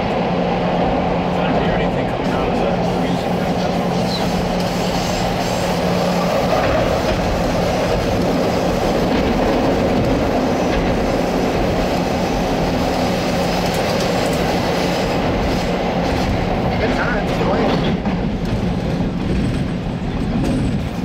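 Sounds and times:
steel wheels rumbling on rails: 0.0 - 21.0.

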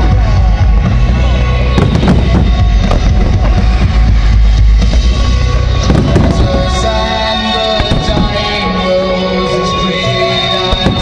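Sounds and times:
loud music with heavy bass: 0.0 - 11.0
firework shells bursting: 4.8 - 8.8.

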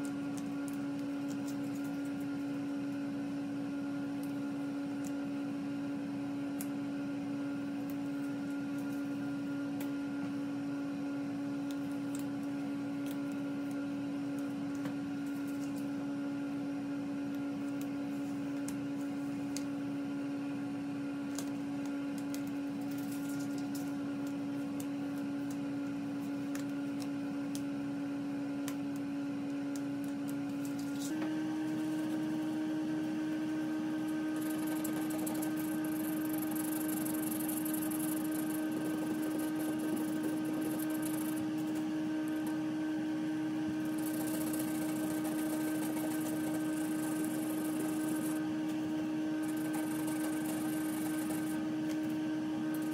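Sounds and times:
tape crinkling and clicking: 0.0 - 2.5, 21.3 - 27.7
steady hum: 0.0 - 52.9.

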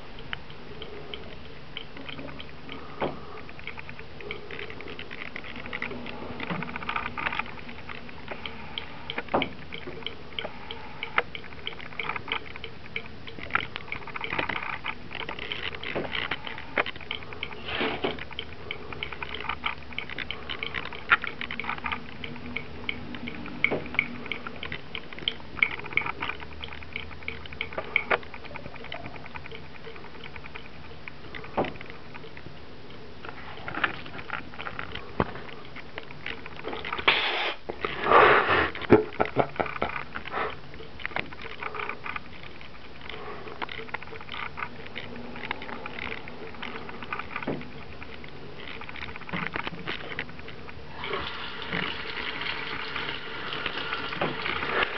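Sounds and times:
cat pawing and lapping water: 0.0 - 38.1, 38.7 - 54.9
water trickling from tap into sink: 51.0 - 54.9.

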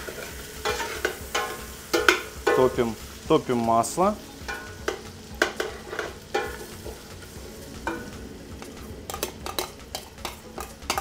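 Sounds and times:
metal utensil clinking on pot: 0.0 - 2.7, 4.5 - 6.7, 9.1 - 11.0
meat sizzling in butter: 0.0 - 11.0.

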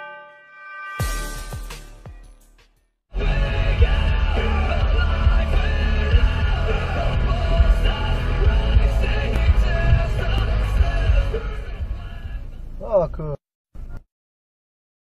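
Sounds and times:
rock music with singing: 3.1 - 12.6.

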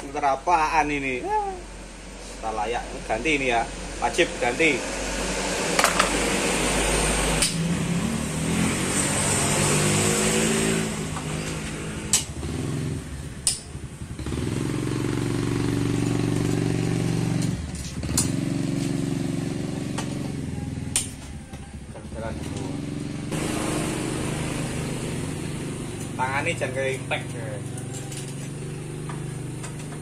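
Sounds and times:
motorcycle engine revving: 3.1 - 30.0
sharp metallic clicks: 13.4 - 13.7.

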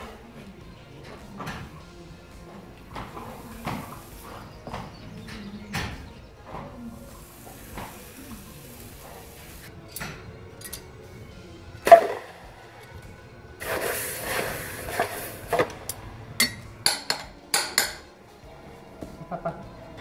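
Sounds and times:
hot metal hissing in water: 7.0 - 9.7, 13.6 - 15.7
metallic clinks of tongs: 9.9 - 10.9.

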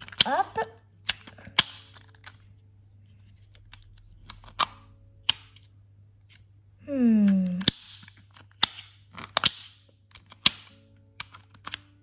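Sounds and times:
plastic puzzle ball clicking: 0.0 - 0.3, 1.0 - 2.4, 7.2 - 11.9.

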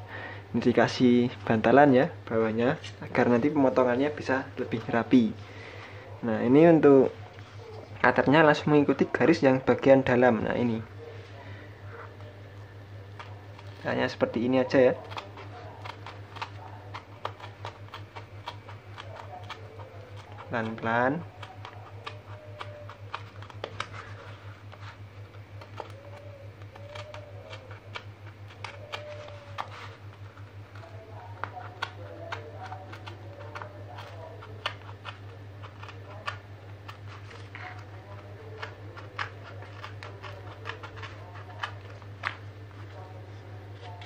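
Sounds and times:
steady low hum: 0.0 - 44.0
craft knife cutting cardboard: 14.8 - 44.0.

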